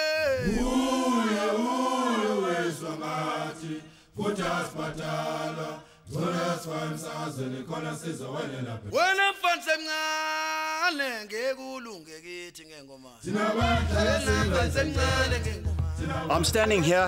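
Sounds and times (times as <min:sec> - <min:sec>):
man chanting: 0:00.0 - 0:00.7, 0:08.9 - 0:13.3, 0:14.1 - 0:17.0.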